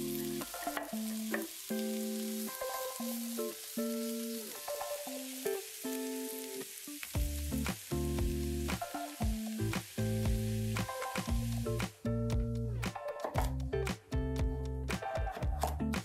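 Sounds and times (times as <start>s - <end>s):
food sizzling in oil: 0.0s - 11.9s
background music: 0.0s - 16.0s.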